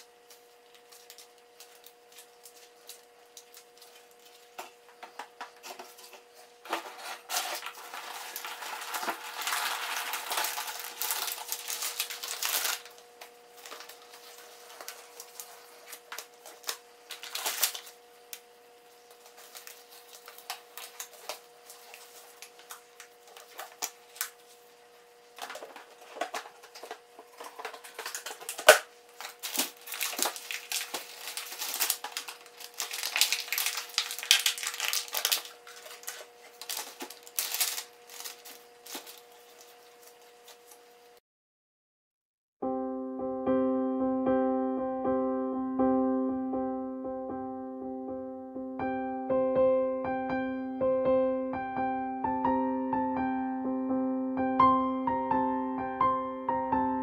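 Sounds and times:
aluminium foil crinkling: 0.0s - 41.1s.

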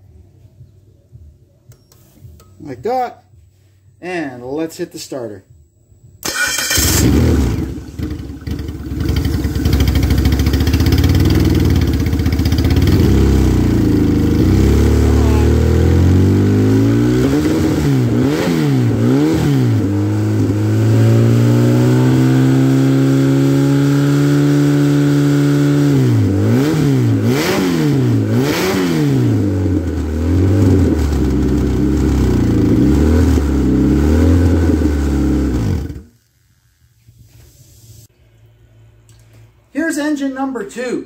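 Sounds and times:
car engine revving and idling: 6.7s - 36.1s.

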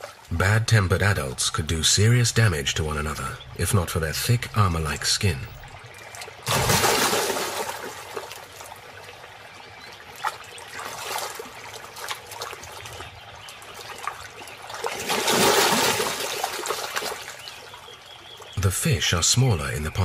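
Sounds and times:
water sloshing and splashing: 0.0s - 18.6s
crocodile surging through water: 6.4s - 8.8s, 10.1s - 17.6s.

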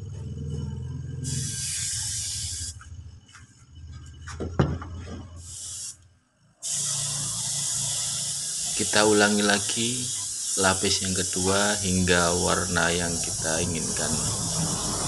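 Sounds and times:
spray gun hissing: 1.2s - 2.8s, 5.4s - 6.0s, 6.6s - 15.0s.

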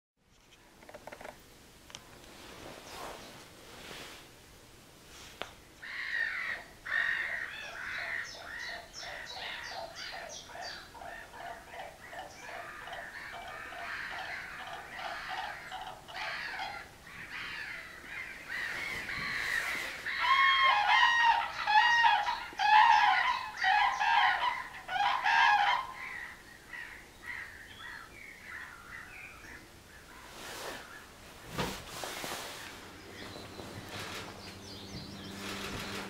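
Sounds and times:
cranes trumpeting duet calls: 5.8s - 27.5s
cranes calling: 5.8s - 31.1s, 32.6s - 36.0s.

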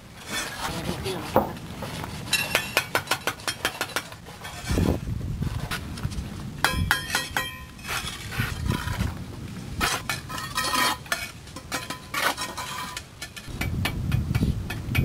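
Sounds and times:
trowel and hammer clinking on bricks: 1.3s - 4.8s, 6.6s - 9.2s, 9.8s - 15.0s.

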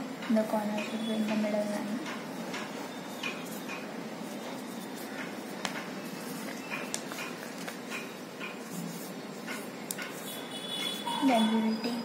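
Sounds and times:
paper crackling: 4.2s - 11.0s.

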